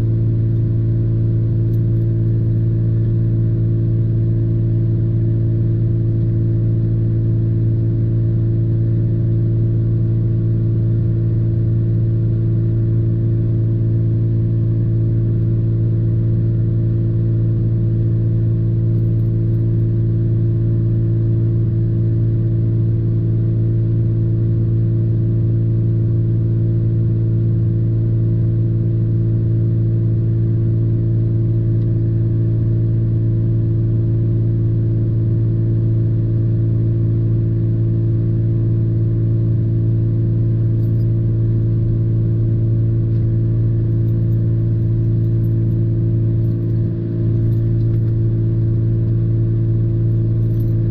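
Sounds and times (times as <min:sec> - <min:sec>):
vehicle engine hum: 0:00.0 - 0:06.0, 0:39.0 - 0:50.9.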